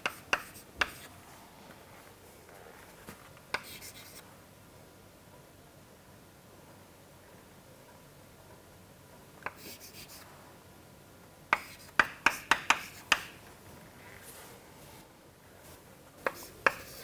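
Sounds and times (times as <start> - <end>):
chalk scratching: 0.0 - 1.1, 3.6 - 4.2, 9.5 - 10.3, 11.6 - 13.3, 16.2 - 17.0
chalk tapping on blackboard: 0.0 - 1.1, 3.5 - 4.2, 11.5 - 13.4, 16.2 - 17.0.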